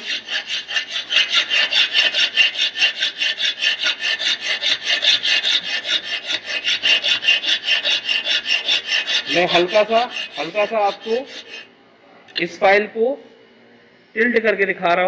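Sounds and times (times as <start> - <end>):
hand file rasping on metal: 0.0 - 11.7.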